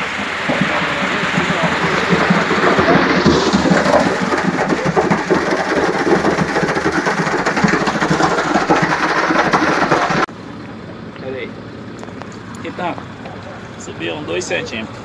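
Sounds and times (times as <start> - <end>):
wet concrete sliding down chute: 0.0 - 10.3
concrete mixer truck running: 0.0 - 15.0.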